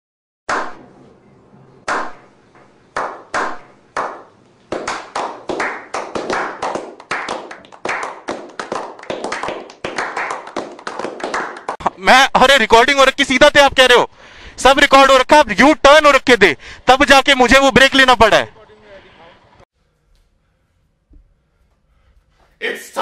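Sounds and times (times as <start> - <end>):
group clapping: 1.9 - 2.2, 3.0 - 11.9.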